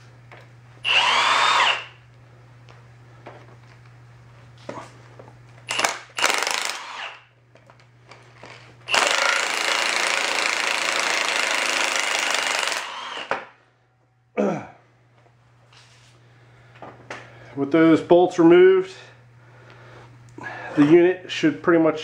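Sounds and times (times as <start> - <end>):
impact wrench hammering: 5.7 - 7.2, 8.9 - 13.5.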